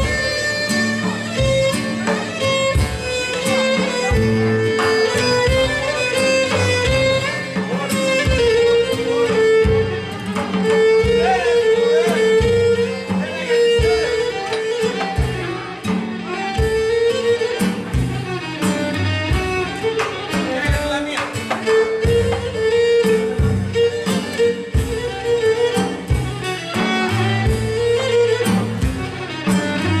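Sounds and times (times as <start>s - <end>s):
drum kit steady beat: 0.0s - 30.0s
low bass notes: 2.7s - 15.9s, 22.0s - 30.0s.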